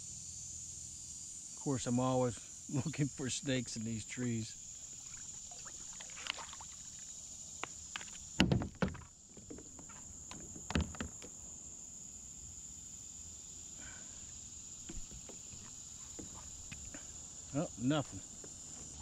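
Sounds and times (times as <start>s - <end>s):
insects droning: 0.0s - 19.0s
knocks on plastic kayak: 8.4s - 9.6s.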